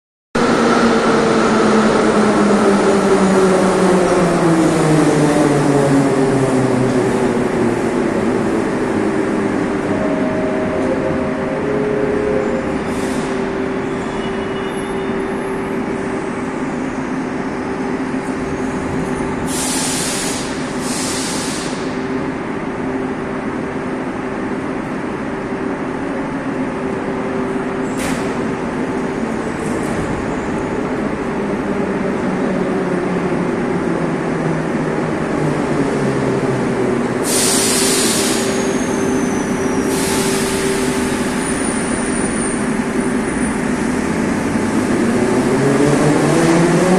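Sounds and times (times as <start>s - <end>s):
air hisses: 19.5s - 21.8s.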